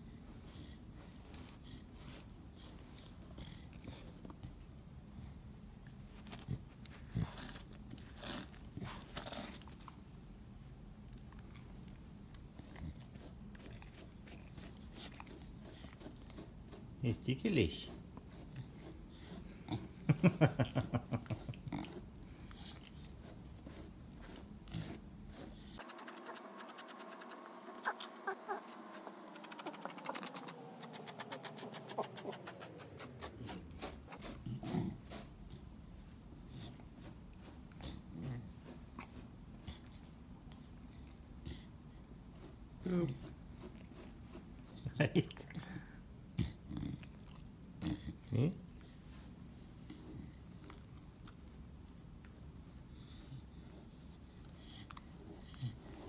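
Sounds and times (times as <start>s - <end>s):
brush scratching through fur: 12.8s - 20.6s, 22.8s - 39.4s
brush strokes through fur: 25.3s - 35.4s.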